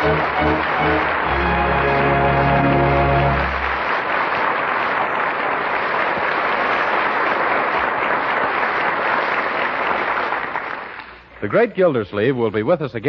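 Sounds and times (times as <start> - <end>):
held music chord: 0.0 - 4.0
audience applauding: 0.0 - 11.3.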